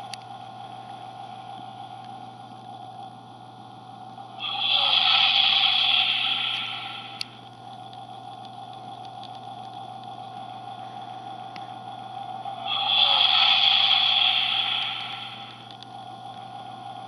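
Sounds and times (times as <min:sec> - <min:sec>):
electronic spaceship hum: 0:00.0 - 0:17.0
hissing whoosh: 0:04.4 - 0:07.2, 0:12.1 - 0:15.7.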